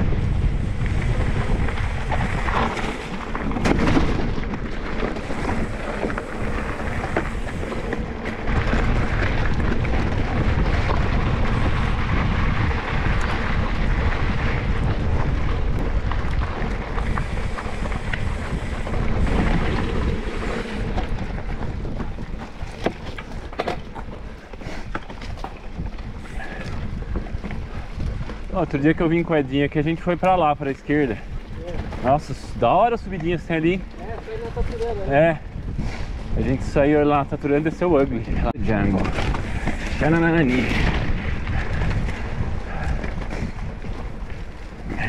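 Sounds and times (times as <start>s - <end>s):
bike clicks and rattles: 0.0s - 45.0s
bike tyres on dirt: 0.0s - 45.0s
wind rumbling on microphone: 0.0s - 45.0s.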